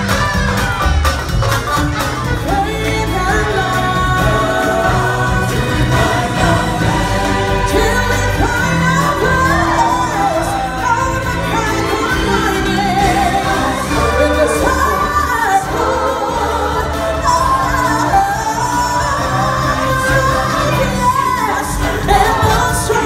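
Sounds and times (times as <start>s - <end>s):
amplified backing music: 0.0s - 23.0s
people singing into microphones: 2.4s - 23.0s.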